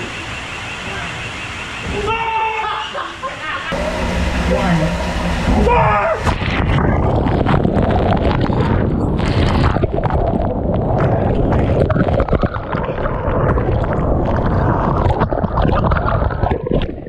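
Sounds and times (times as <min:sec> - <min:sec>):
water rushing through slide tube: 0:01.8 - 0:17.0
low rumble: 0:03.7 - 0:16.5.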